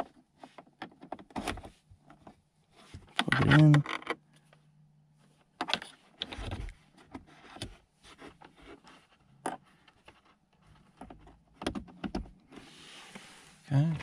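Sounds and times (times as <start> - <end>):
plastic clicks and scraping: 3.0 - 4.6.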